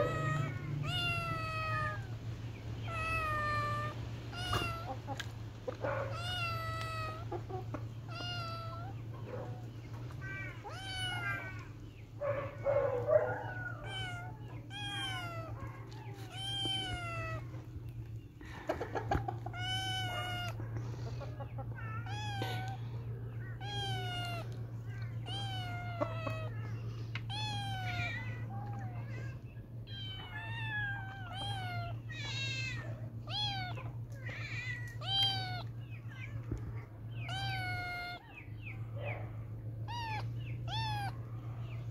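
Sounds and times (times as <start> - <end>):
kitten meowing: 0.0 - 2.2, 2.8 - 5.3, 6.1 - 7.4, 8.0 - 9.1, 10.2 - 11.7, 13.4 - 17.6, 19.5 - 20.6, 21.8 - 22.9, 23.5 - 26.6, 27.2 - 38.3, 39.8 - 41.2
steady low hum: 0.0 - 41.9.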